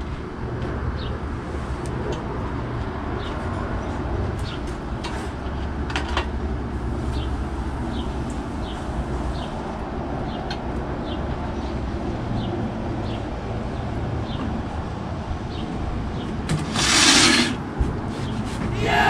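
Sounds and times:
sliding glass door opening: 0:16.5 - 0:17.6.

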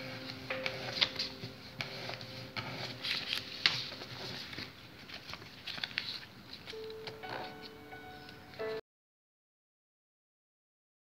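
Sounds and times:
paper rustling and crinkling: 0:00.0 - 0:08.4.

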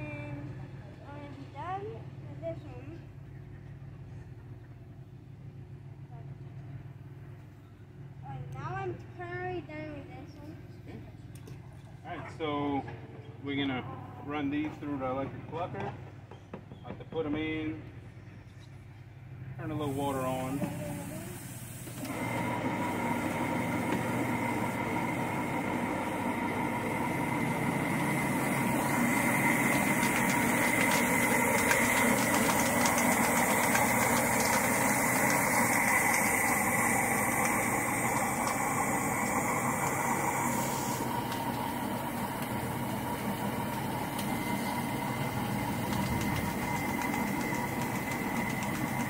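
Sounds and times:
poultry plucker motor humming: 0:19.1 - 0:49.0
water running from hose: 0:19.8 - 0:49.0.

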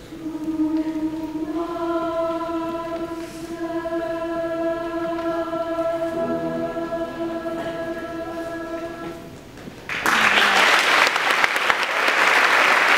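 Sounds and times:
girls' choir holding a chord: 0:00.0 - 0:09.6.

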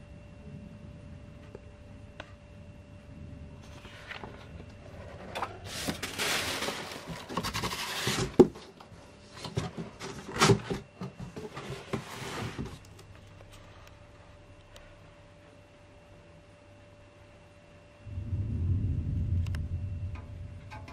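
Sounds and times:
faint steady hum: 0:00.0 - 0:20.9
paper rustling: 0:03.6 - 0:08.7.

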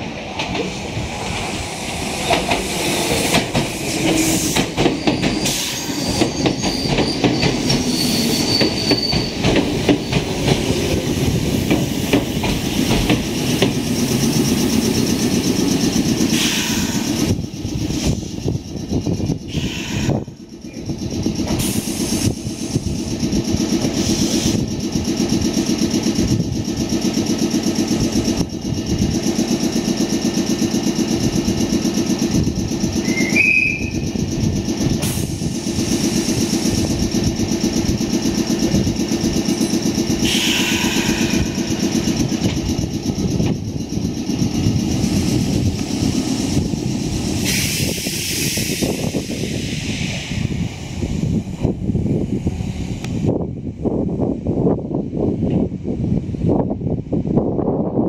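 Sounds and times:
train wheels clicking over rail joints: 0:00.0 - 0:53.4
train equipment humming: 0:00.0 - 0:58.0
train brake squeal: 0:02.6 - 0:11.0, 0:13.6 - 0:23.1, 0:32.4 - 0:34.2, 0:39.5 - 0:42.4, 0:45.0 - 0:50.7.

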